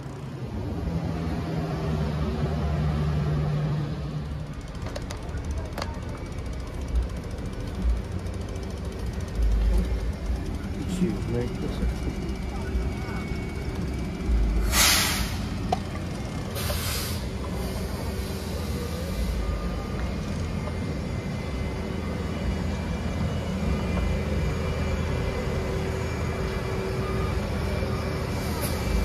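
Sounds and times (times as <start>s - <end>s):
traffic rumble: 0.0s - 29.0s
short hisses: 14.6s - 15.5s, 16.6s - 19.4s.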